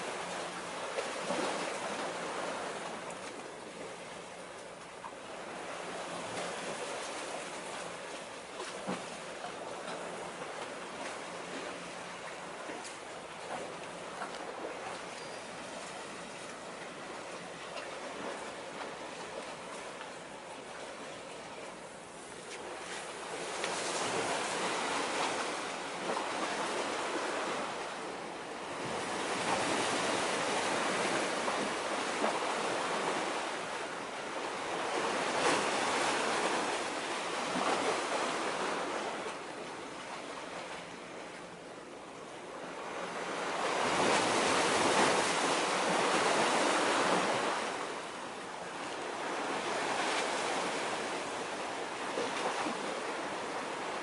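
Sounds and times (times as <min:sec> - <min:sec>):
waves washing against concrete: 0:22.3 - 0:39.5.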